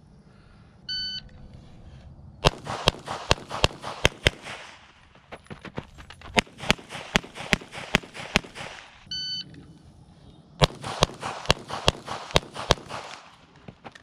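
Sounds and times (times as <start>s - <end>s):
shot timer beep: 0.9s - 1.2s, 9.1s - 9.5s
pistol shots: 2.4s - 5.2s, 6.4s - 9.1s, 10.6s - 13.6s.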